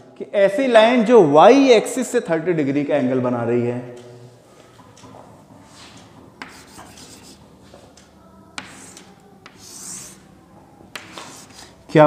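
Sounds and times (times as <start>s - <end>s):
chalk tapping on board: 6.4s - 7.4s, 8.6s - 10.3s, 10.9s - 11.7s
chalk scraping on blackboard: 6.4s - 7.5s, 8.6s - 10.3s, 11.0s - 11.8s.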